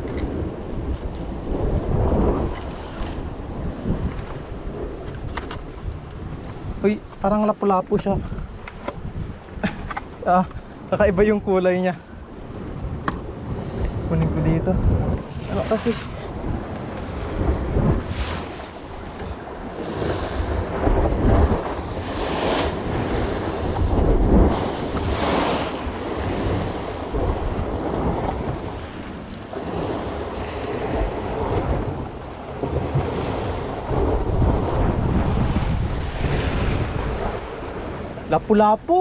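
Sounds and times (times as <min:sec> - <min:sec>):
wind buffeting microphone: 0:00.0 - 0:39.0
surf breaking on rocks: 0:11.2 - 0:39.0.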